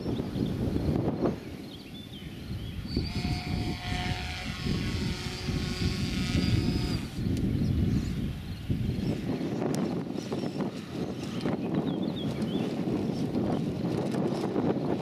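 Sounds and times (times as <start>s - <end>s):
wind buffeting microphone: 0.0s - 15.0s
small propeller motor whining: 2.9s - 7.4s.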